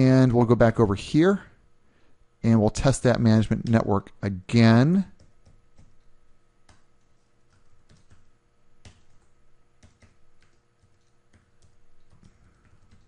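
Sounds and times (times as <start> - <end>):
faint electrical hum: 0.0 - 13.0
keyboard keystrokes: 5.2 - 6.1, 6.7 - 13.0.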